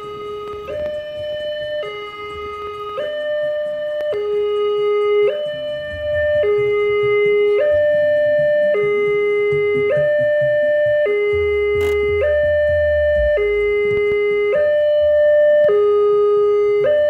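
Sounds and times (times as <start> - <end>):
level crossing two-tone alarm: 0.0 - 17.0.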